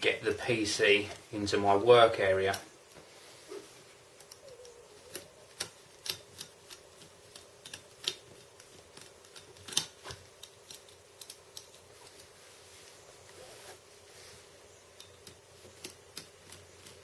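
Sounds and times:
metallic clicks and ticks: 4.2 - 11.9.

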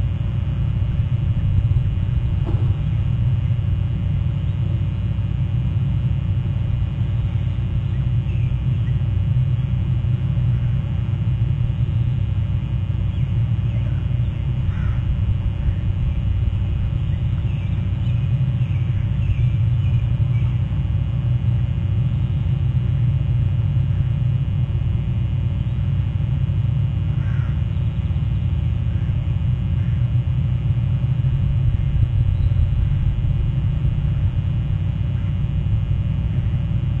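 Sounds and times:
low rumble: 0.0 - 27.0, 28.8 - 37.0
oystercatcher calls: 17.0 - 20.6.

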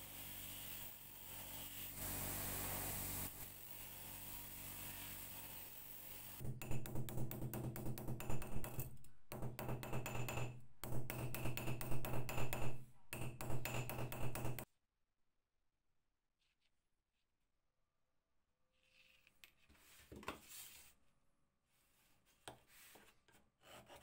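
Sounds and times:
hammer tapping on metal punch: 6.4 - 14.6.

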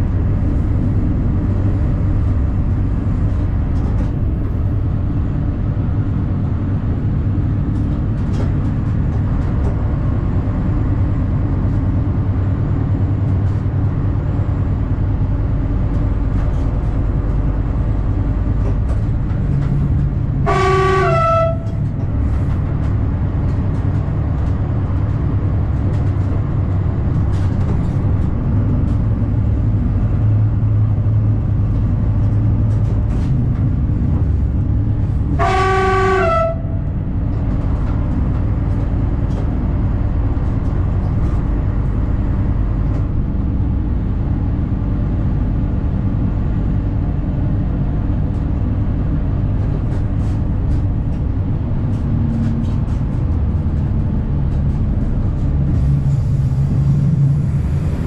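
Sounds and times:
railcar rumbling along track: 0.0 - 58.0
train horn blasts: 20.4 - 22.0, 35.3 - 37.0.

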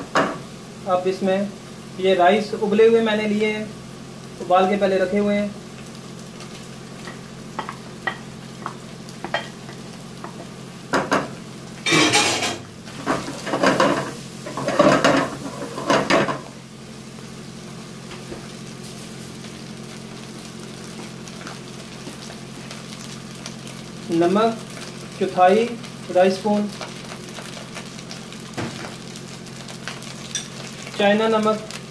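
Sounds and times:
food sizzling: 0.0 - 31.9.

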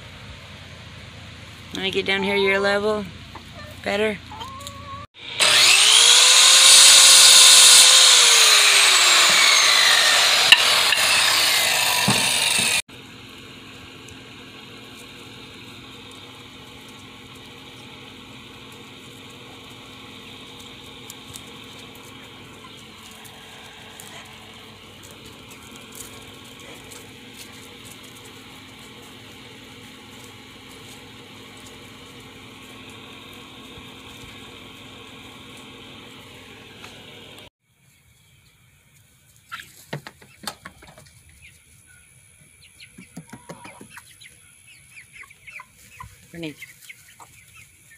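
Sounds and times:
circular saw cutting wood: 5.1 - 12.9, 17.6 - 27.7.

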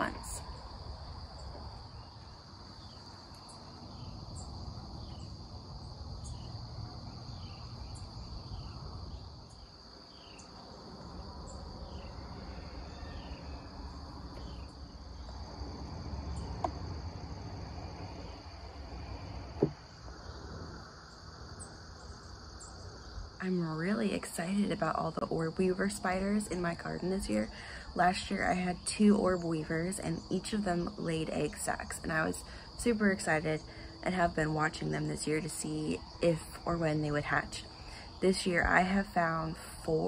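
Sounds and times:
high-pitched insect drone: 0.0 - 24.8.

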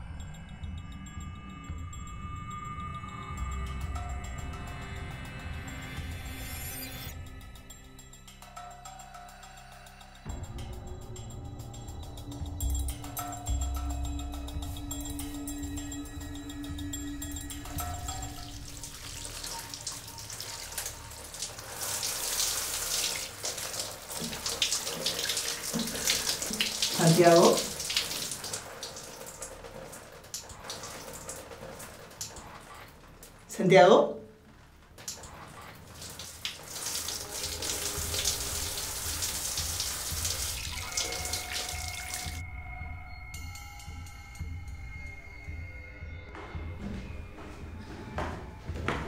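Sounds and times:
shower water running: 13.0 - 42.4.

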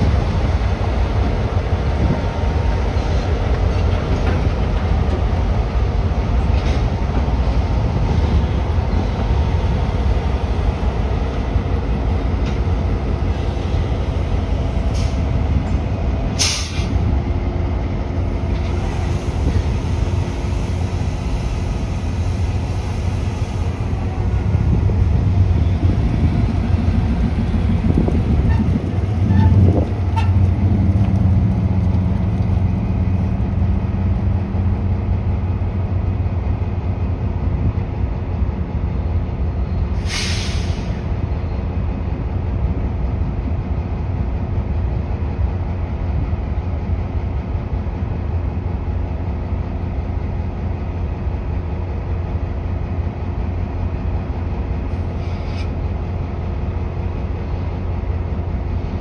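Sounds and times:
diesel locomotives idling: 0.0 - 59.0
air hiss: 16.4 - 17.0, 40.0 - 41.0, 55.2 - 55.8.

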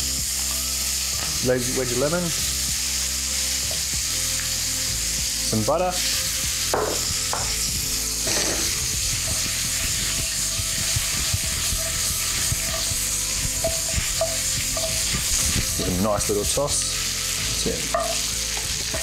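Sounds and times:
prawns sizzling in butter: 0.0 - 19.0
frying pan knocking and scraping: 6.5 - 16.7, 17.6 - 19.0.

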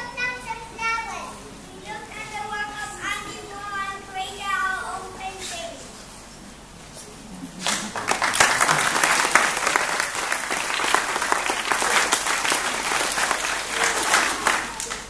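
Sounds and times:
audience clapping: 7.5 - 15.0.

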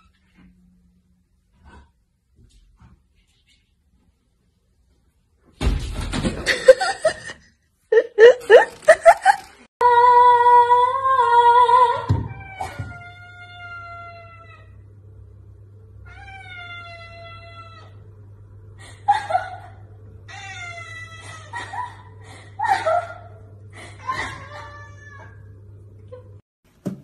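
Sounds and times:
steady low hum: 13.2 - 26.4.

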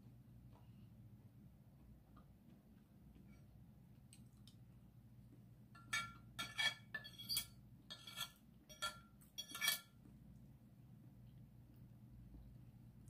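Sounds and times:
cutlery scraping a ceramic plate: 5.8 - 10.0.

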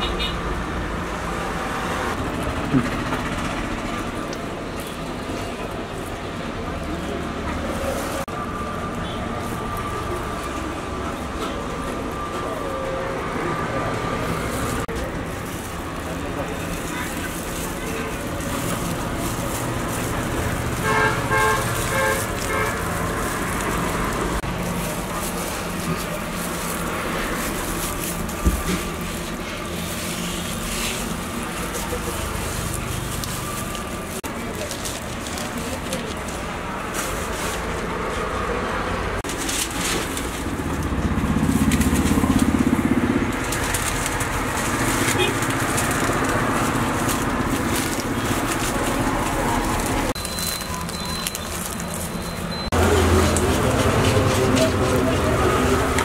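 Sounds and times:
vehicle horn tooting: 0.0 - 0.5, 20.7 - 23.2, 45.0 - 45.6
stall background noise: 0.0 - 56.0
street traffic hum: 0.0 - 56.0
pulsing engine: 0.7 - 36.8
paper rustling: 14.2 - 38.3, 39.2 - 56.0.

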